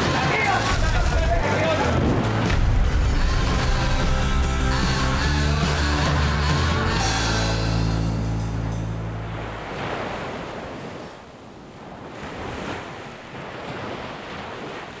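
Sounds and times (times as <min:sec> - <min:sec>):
music: 0:00.0 - 0:09.6.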